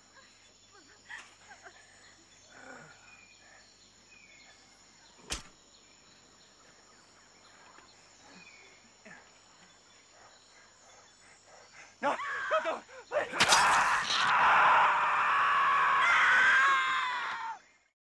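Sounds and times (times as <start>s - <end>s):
insects droning: 0.0s - 17.9s
bird-like chirps: 0.2s - 12.1s
sharp click: 5.3s - 5.6s.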